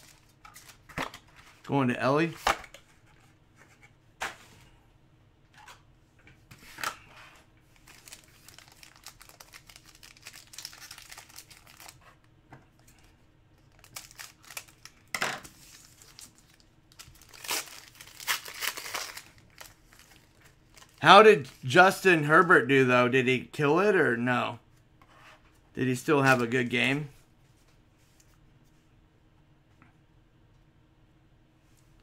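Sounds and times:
foil wrapper crinkling: 7.8s - 12.0s, 13.6s - 21.7s
foil wrapper ripping: 7.8s - 12.0s, 13.7s - 15.0s, 15.6s - 21.0s.

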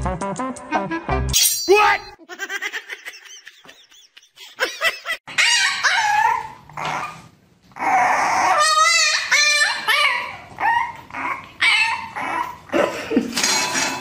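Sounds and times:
puppy yelping and howling: 5.3s - 7.2s, 7.8s - 12.7s.

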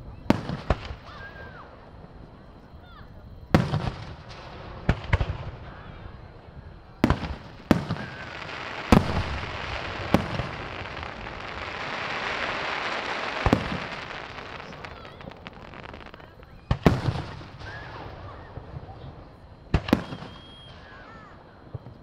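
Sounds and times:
fireworks booming: 3.5s - 5.9s, 6.9s - 22.0s
fireworks hiss: 7.0s - 18.7s.

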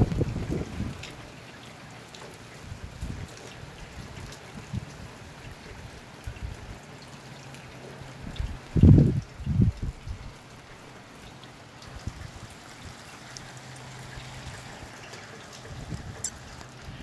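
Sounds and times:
wind bumps on microphone: 0.0s - 1.0s, 8.2s - 10.3s, 15.7s - 17.0s
steady rain: 0.0s - 17.0s.

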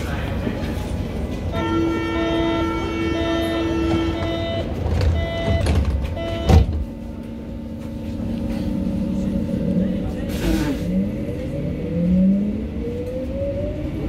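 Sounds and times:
low train hum: 0.0s - 14.0s
electronic warning tone with beeps: 4.3s - 6.6s.

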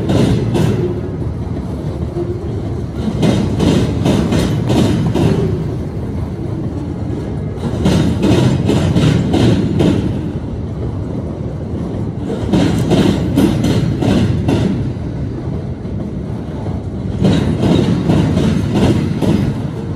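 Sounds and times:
train wheels rumbling on rail: 0.0s - 19.9s.

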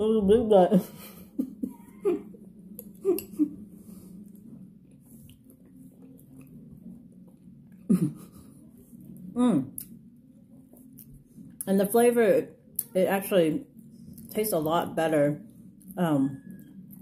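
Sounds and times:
person chewing: 2.6s - 8.3s.

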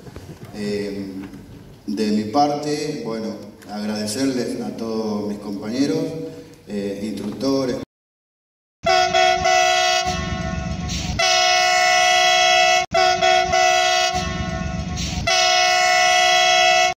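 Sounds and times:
train horn chord: 8.8s - 17.0s
low rumble: 10.1s - 11.2s.

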